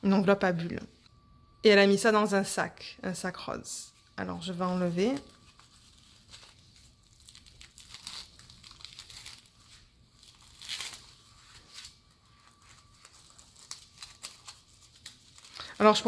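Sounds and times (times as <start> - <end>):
plastic bags crinkling: 4.0 - 16.0.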